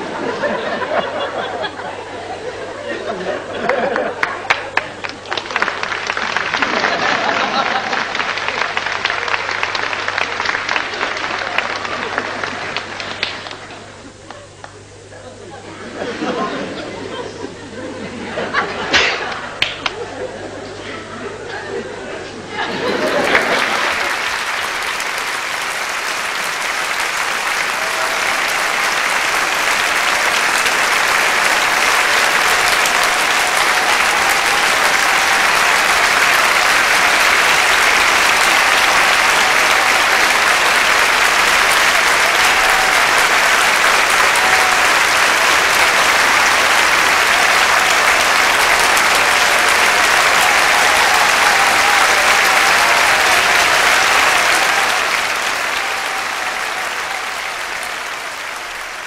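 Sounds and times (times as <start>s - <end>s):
audience applauding: 0.0s - 14.9s, 22.5s - 59.0s.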